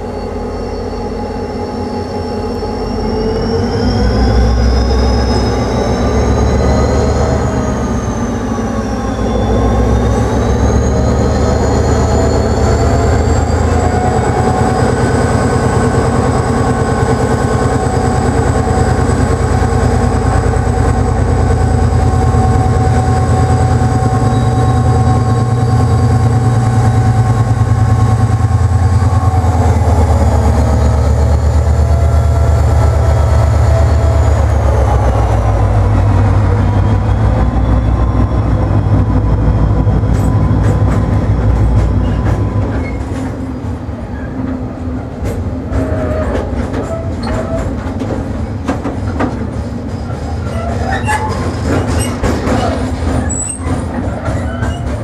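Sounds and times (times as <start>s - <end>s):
diesel locomotive engine running: 0.0s - 55.0s
train wheels clicking over rail joints: 39.1s - 55.0s.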